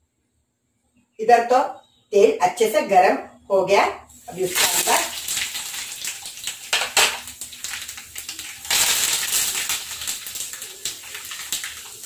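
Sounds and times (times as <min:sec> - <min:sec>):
hot oil sizzling and spluttering: 0:04.1 - 0:12.0.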